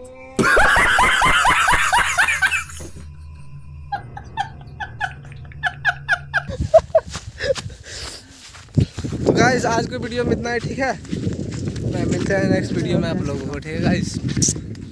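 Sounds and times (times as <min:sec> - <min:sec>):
man laughing: 0:00.4 - 0:03.0, 0:03.9 - 0:07.8.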